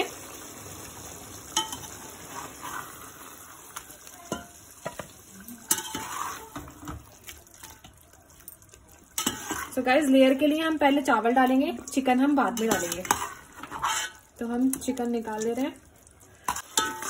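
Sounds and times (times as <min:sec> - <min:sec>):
curry sizzling in a pot: 0:00.0 - 0:17.0
metal spoon scraping pot: 0:05.6 - 0:06.7, 0:09.2 - 0:09.8, 0:11.9 - 0:14.3, 0:16.4 - 0:17.0.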